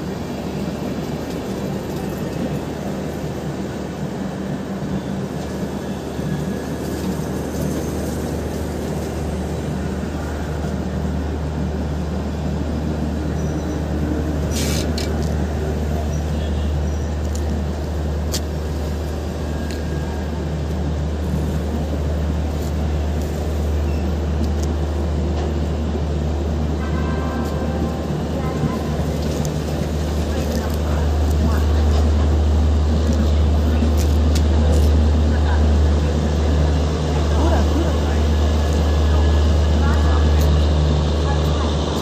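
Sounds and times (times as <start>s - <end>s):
train coaches rolling past: 0.0s - 42.0s.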